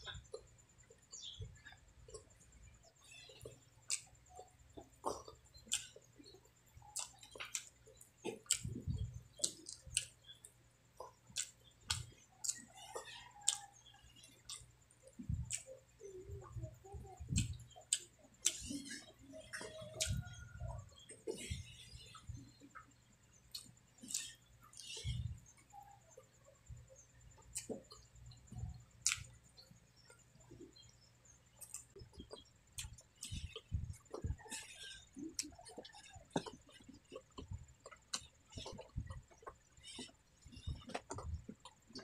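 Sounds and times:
chewing and lip smacking: 0.0s - 42.0s
sharp wet mouth clicks: 3.9s - 4.1s, 5.1s - 6.0s, 6.9s - 10.2s, 11.3s - 12.6s, 13.2s - 16.7s, 17.3s - 20.7s, 23.4s - 25.4s, 27.5s - 29.4s.

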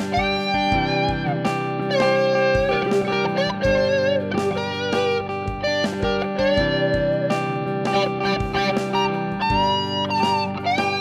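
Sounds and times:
electric guitar lead notes: 0.0s - 11.0s
lower backing guitar part: 0.0s - 11.0s.

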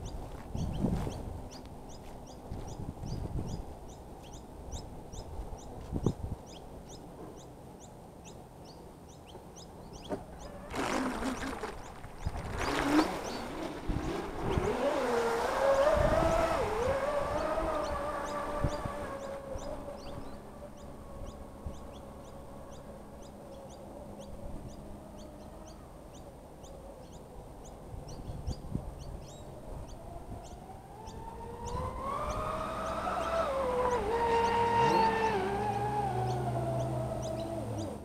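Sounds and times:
electric motor bursts: 10.4s - 20.1s, 31.1s - 38.0s
electric motor whine: 10.4s - 22.8s, 29.9s - 38.0s.

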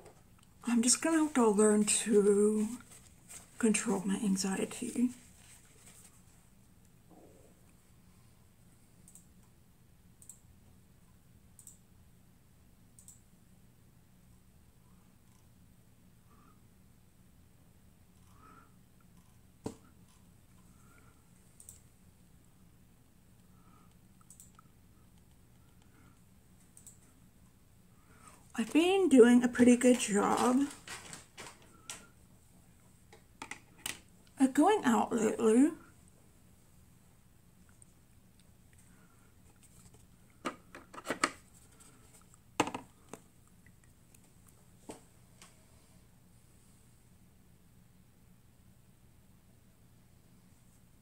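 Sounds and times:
faint low hum: 0.0s - 51.0s
small clicks: 9.0s - 9.5s, 10.2s - 10.5s, 11.6s - 11.8s, 13.0s - 13.2s, 21.6s - 21.9s, 24.2s - 25.9s, 26.7s - 27.1s.

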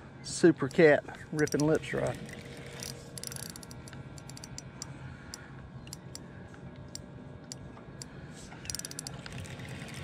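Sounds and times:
fishing reel clicking: 1.4s - 4.9s, 7.5s - 9.8s.

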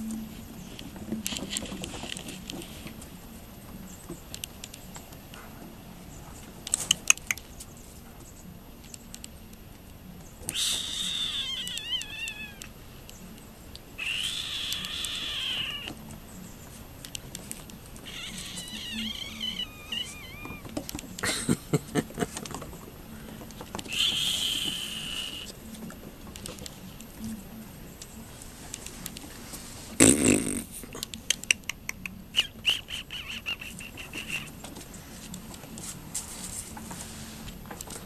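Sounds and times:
sharp clicks: 6.6s - 7.6s, 8.8s - 16.0s, 30.0s - 34.5s
puppy whining: 10.5s - 12.7s, 14.0s - 16.0s, 18.0s - 21.2s.

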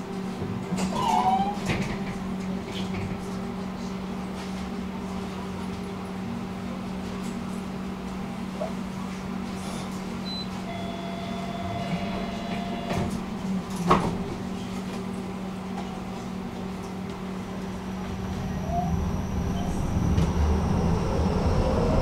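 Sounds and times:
tram electrical hum: 0.0s - 22.0s
steady tone: 17.6s - 22.0s.

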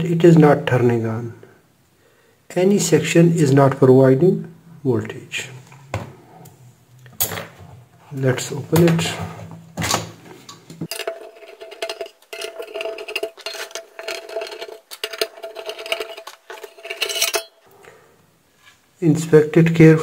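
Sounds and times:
metallic clinks and scrapes: 10.9s - 17.8s.

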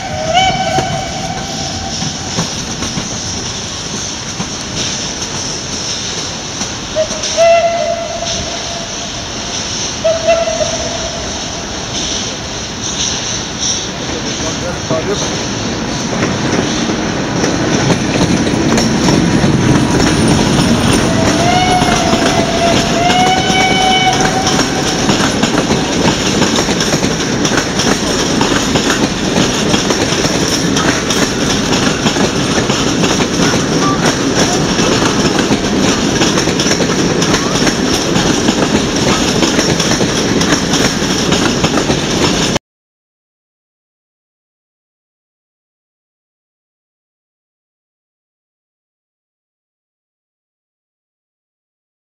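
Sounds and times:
train whistle: 0.0s - 2.4s, 6.9s - 12.2s, 20.9s - 25.2s
train rumble and wheel clatter: 0.0s - 42.6s.

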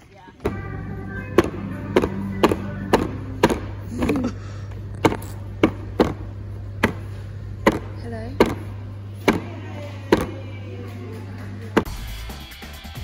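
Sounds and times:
steady low hum: 0.0s - 12.3s
sharp knocks: 6.8s - 8.7s.

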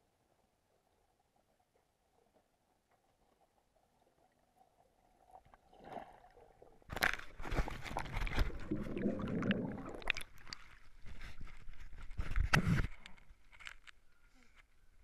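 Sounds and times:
water gurgling: 0.5s - 11.1s
water sloshing and splashing: 5.2s - 12.4s.

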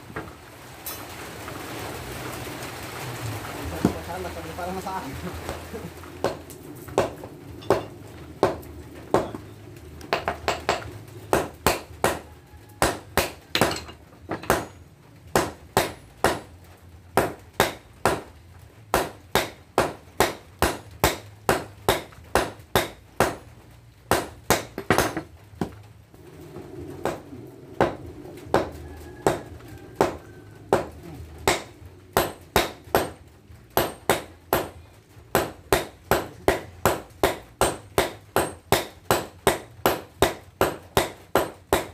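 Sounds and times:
low steady hum: 0.0s - 41.9s
hammers striking metal on anvil: 7.0s - 9.4s, 10.1s - 12.2s, 12.8s - 16.5s, 17.2s - 18.3s, 18.9s - 23.4s, 24.1s - 25.3s, 30.0s - 33.2s, 33.8s - 41.9s.

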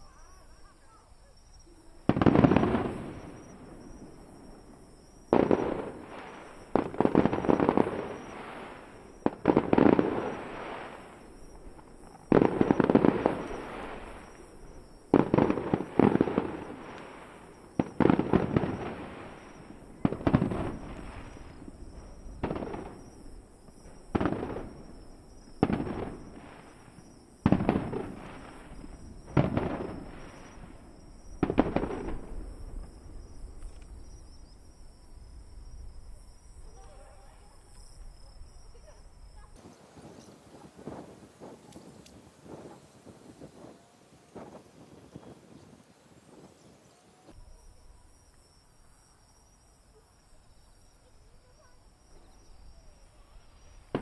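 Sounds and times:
firework shells booming: 2.0s - 34.2s.

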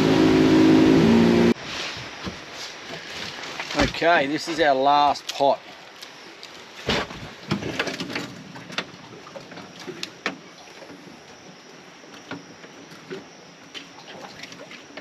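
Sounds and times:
steady hiss: 1.6s - 7.1s
knocks and clunks on a boat: 3.6s - 4.1s, 6.8s - 15.0s.

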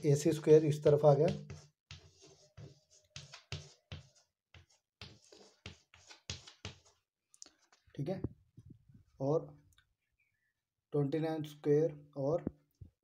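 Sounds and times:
chalk scratching on chalkboard: 0.3s - 7.0s.

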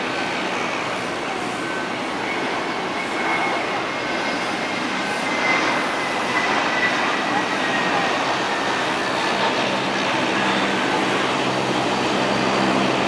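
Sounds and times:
turboprop airliner taxiing: 0.0s - 13.0s.

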